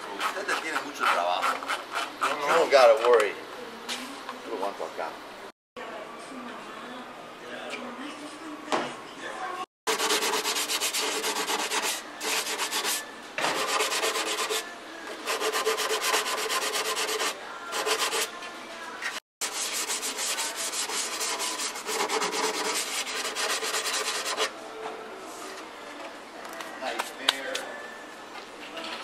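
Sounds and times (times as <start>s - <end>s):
hand sanding with sponge: 9.9s - 18.3s, 19.4s - 24.5s.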